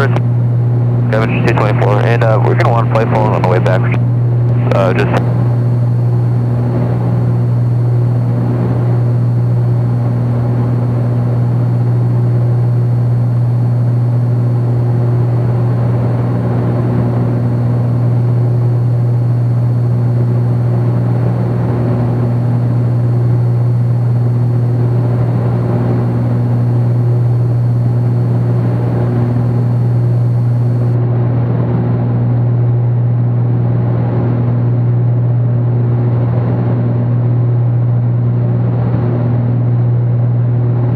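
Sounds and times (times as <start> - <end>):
propeller engines droning: 0.0 - 31.0
higher engine overtone: 1.0 - 31.0.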